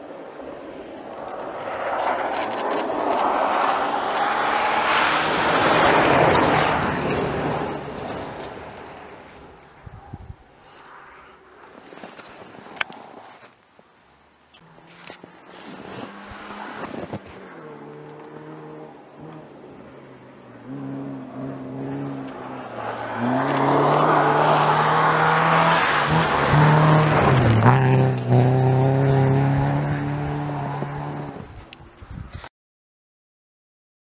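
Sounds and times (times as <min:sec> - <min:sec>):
rally car engine revving: 0:01.6 - 0:08.7, 0:14.7 - 0:19.6, 0:20.6 - 0:31.5.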